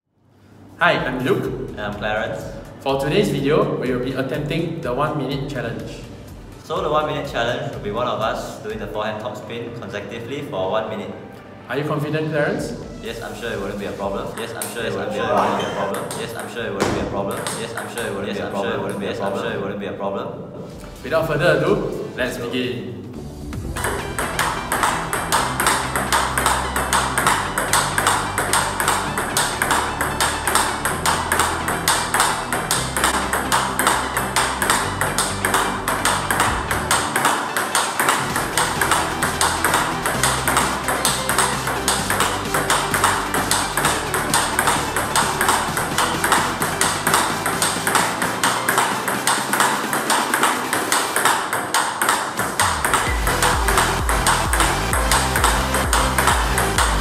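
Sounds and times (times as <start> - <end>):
table tennis ball clicks: 15.6 - 19.1, 23.7 - 57.0.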